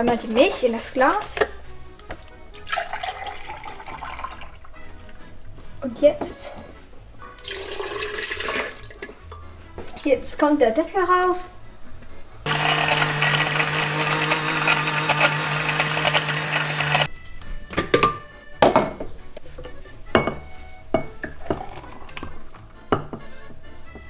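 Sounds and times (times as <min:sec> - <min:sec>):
blender running: 0:12.5 - 0:17.1.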